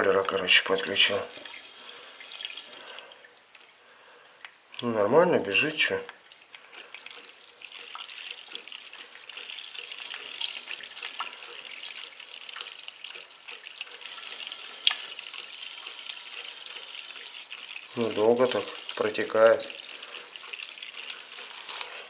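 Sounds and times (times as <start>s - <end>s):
water running into a pipe: 0.4s - 3.7s, 5.8s - 22.0s.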